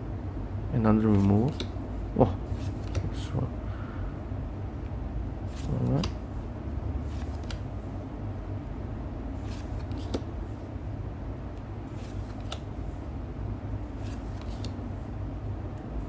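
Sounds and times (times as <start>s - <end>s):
steady low hum: 0.0s - 16.0s
cards flicking in hands: 1.1s - 1.8s, 2.5s - 3.2s, 7.1s - 7.7s, 9.4s - 10.3s, 12.0s - 12.7s, 14.0s - 14.8s.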